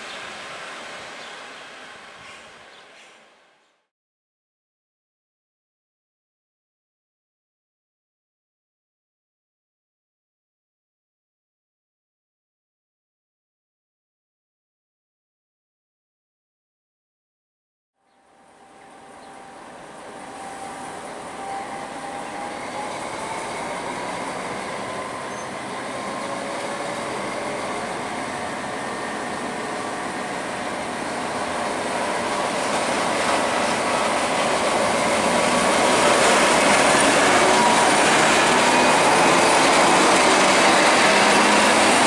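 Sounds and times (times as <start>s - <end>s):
diesel locomotive rumbling: 18.3s - 42.0s
thin squealing tones: 20.3s - 26.4s.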